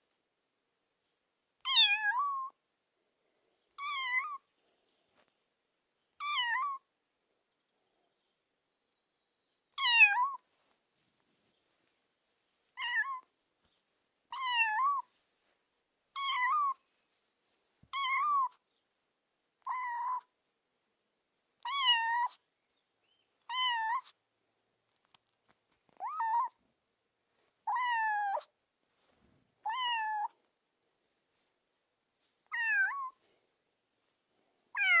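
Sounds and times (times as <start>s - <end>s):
kitten meowing: 1.6s - 2.5s, 3.8s - 4.4s, 6.2s - 6.8s, 9.7s - 10.4s, 12.8s - 13.3s, 14.3s - 15.1s, 16.2s - 16.8s, 17.9s - 18.6s, 19.6s - 20.3s, 21.6s - 22.4s, 23.5s - 24.2s, 25.9s - 26.6s, 27.7s - 28.5s, 29.7s - 30.4s, 32.5s - 33.2s, 34.8s - 35.0s.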